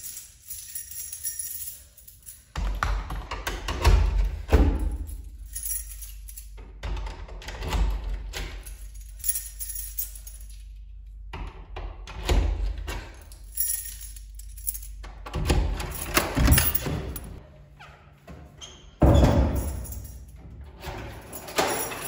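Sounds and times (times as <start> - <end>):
metal keys jangling: 0.0 - 3.0, 4.3 - 6.6, 8.2 - 10.9, 12.9 - 15.1, 15.7 - 17.4, 19.3 - 22.0.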